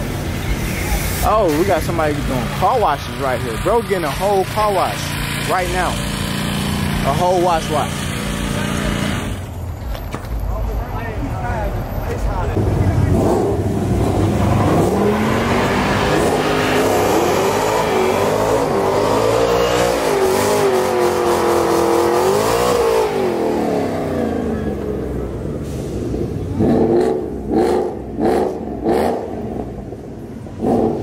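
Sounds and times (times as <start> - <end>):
car engine revving high: 1.7 - 9.5, 12.6 - 29.8
short sharp engine revs: 2.2 - 9.5, 13.0 - 25.0.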